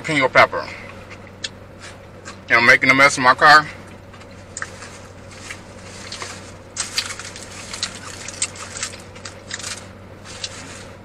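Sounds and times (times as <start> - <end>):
low steady hum: 0.0 - 11.0
foil wrapper crinkling: 4.6 - 10.9.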